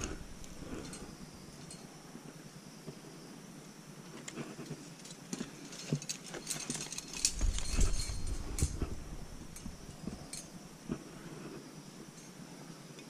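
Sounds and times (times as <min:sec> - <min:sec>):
metal climbing gear jangling: 0:00.0 - 0:02.0, 0:04.2 - 0:10.6.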